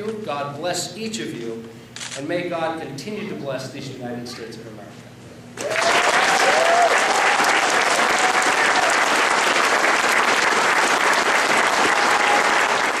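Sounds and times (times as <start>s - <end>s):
crowd applauding: 5.6s - 13.0s.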